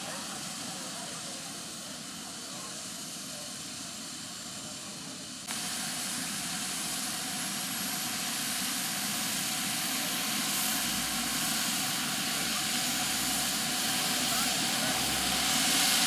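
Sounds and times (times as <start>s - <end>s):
gas turbine rushing: 5.2s - 16.0s
high turbine whine: 5.2s - 16.0s.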